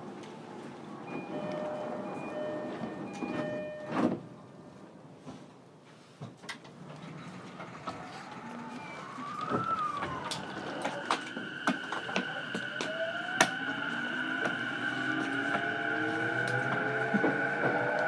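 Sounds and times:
traction inverter whine: 6.9 - 18.0.

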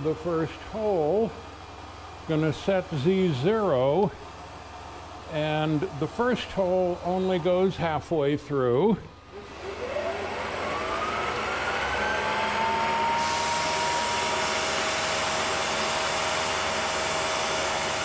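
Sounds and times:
milling machine spindle whine: 9.1 - 18.0.

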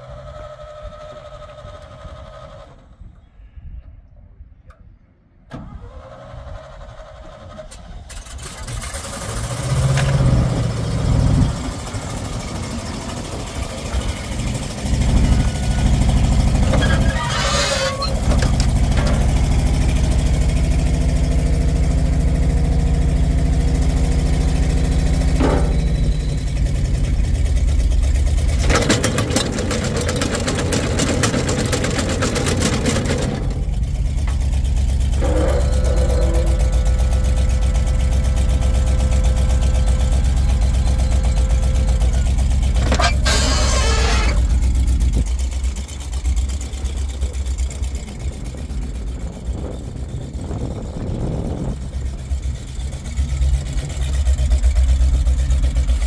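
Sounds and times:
truck engine starting and running: 0.0 - 56.0
rattling conveyor clatter: 11.5 - 37.5, 39.5 - 51.9.

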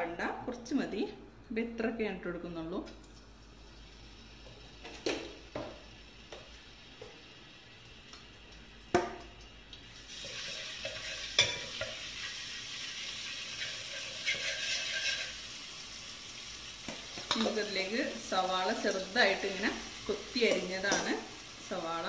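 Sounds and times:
paste sizzling in hot oil: 9.8 - 22.0
ladle stirring: 10.1 - 12.3, 12.9 - 15.4.

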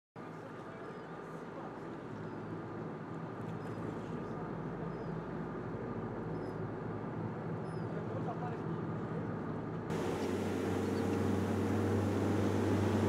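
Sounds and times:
wind: 0.2 - 13.0
boat engine droning: 9.9 - 13.0
water noise: 9.9 - 13.0.

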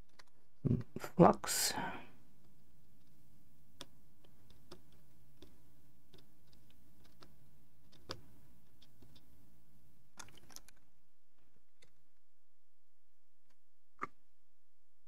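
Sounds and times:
soldering clicks and crackles: 3.8 - 9.3, 10.1 - 12.0.

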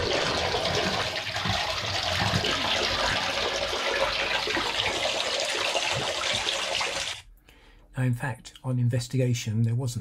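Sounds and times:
water gushing: 0.0 - 7.2.

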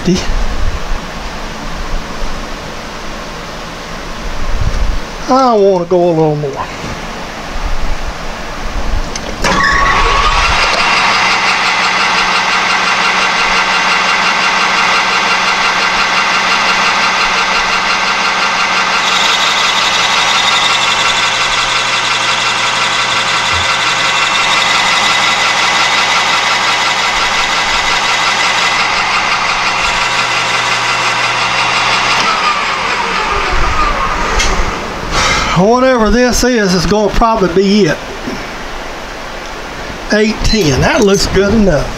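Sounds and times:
lathe spindle whining: 9.2 - 36.0.

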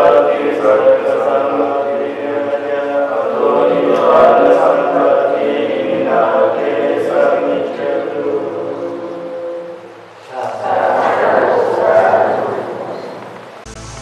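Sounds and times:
monks chanting together: 0.0 - 13.2.

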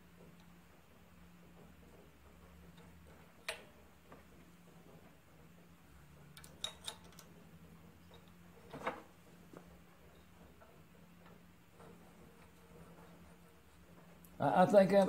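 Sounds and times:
small metal parts clicking: 6.4 - 7.3.

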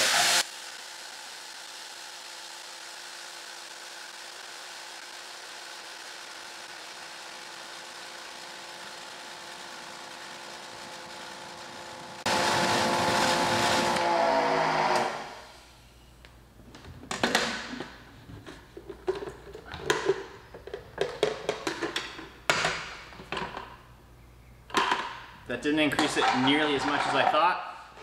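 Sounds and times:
pressure washer motor hum: 3.3 - 15.4.

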